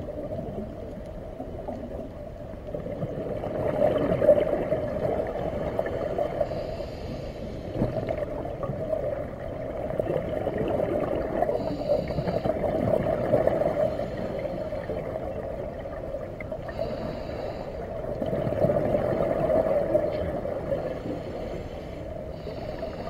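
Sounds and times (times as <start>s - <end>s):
exhaust bubbles gurgling underwater: 0.0s - 23.0s
regulator hiss on inhale: 5.6s - 8.2s, 11.4s - 15.4s, 16.6s - 18.2s, 20.1s - 23.0s.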